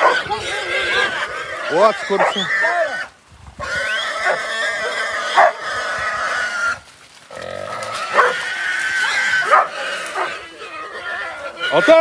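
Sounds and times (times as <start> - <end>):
hog squealing: 0.0 - 6.8, 7.8 - 12.0.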